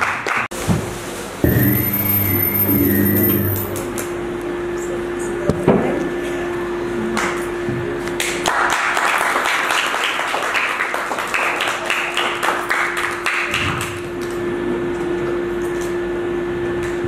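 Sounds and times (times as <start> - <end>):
audience applauding: 0.0 - 0.5, 8.2 - 14.0
low hum: 1.4 - 4.1.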